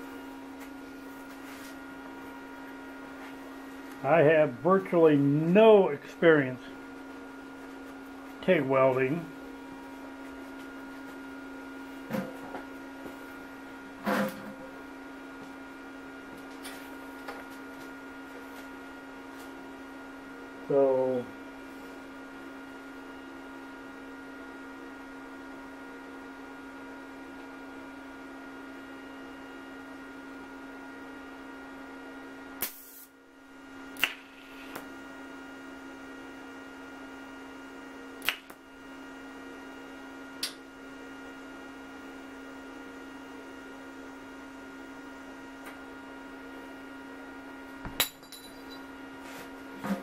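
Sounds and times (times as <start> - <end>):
welder electrical hum: 0.0 - 50.0
sharp welding snaps: 32.6 - 33.1, 38.2 - 38.6.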